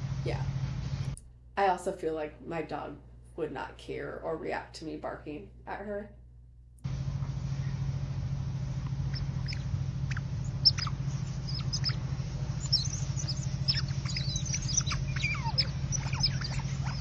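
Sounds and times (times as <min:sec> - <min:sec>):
low hum: 0:00.0 - 0:17.0
otters chirping and squeaking: 0:09.0 - 0:17.0.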